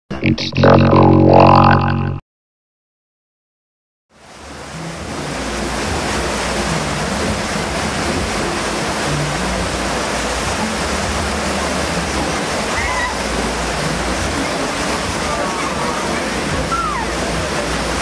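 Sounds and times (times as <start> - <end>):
low hum: 0.1 - 2.2
rushing water: 4.1 - 18.0.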